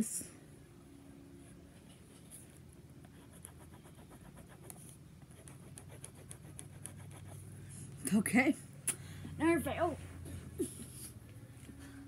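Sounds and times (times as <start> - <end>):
pen scratching on paper: 3.0 - 7.4.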